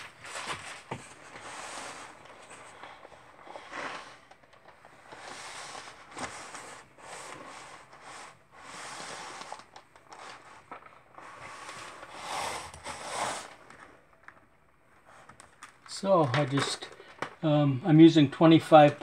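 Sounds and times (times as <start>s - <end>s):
picture frame scraping on paper: 0.0s - 4.3s, 4.9s - 13.8s.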